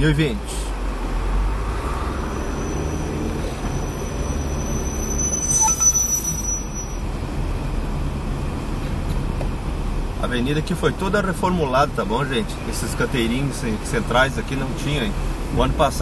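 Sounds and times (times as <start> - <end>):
engine and road rumble: 0.0 - 16.0
high-pitched whine: 2.3 - 7.5.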